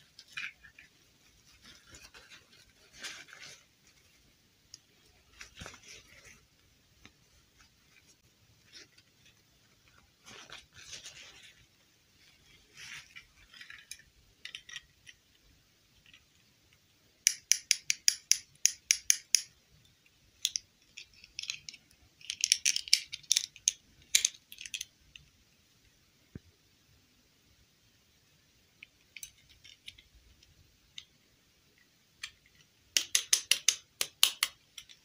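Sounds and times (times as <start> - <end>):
plastic clicks and snaps: 32.2 - 35.0.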